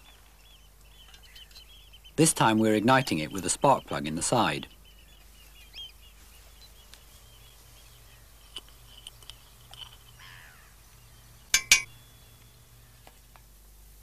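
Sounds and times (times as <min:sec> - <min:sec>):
handling noise: 0:07.8 - 0:10.8
metal spoon clinking on tube: 0:11.6 - 0:11.9.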